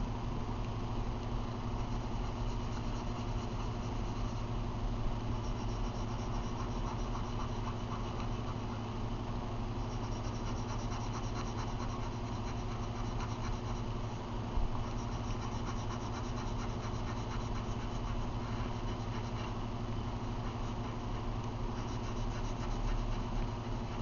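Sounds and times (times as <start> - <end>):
steady low hum: 0.0 - 24.0
pencil scratching on paper: 5.4 - 8.8, 9.8 - 13.9, 14.8 - 19.5, 20.3 - 24.0.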